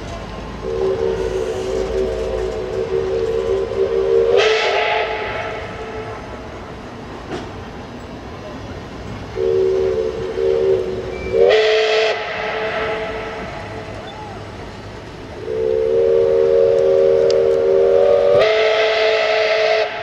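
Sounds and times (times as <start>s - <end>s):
steam hiss: 0.0s - 20.0s
steam whistle blasts: 0.6s - 6.4s, 9.4s - 14.5s, 15.4s - 20.0s.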